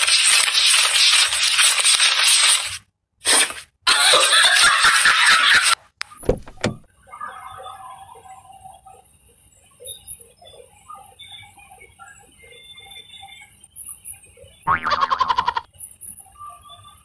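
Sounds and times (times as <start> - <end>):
banknotes rustling: 0.0 - 3.6
low thumps: 6.2 - 6.9.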